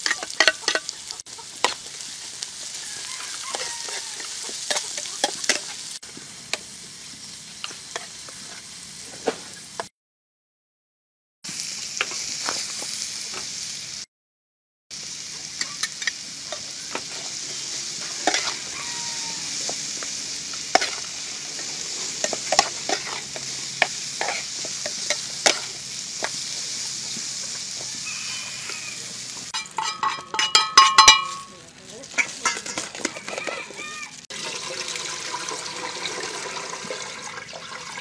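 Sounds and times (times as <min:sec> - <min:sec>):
oil sizzling in a frying pan: 0:00.0 - 0:09.9, 0:11.4 - 0:14.1, 0:14.9 - 0:38.0
metal spatula scraping pan: 0:17.2 - 0:19.0, 0:20.7 - 0:25.8, 0:29.5 - 0:31.5, 0:32.2 - 0:33.6.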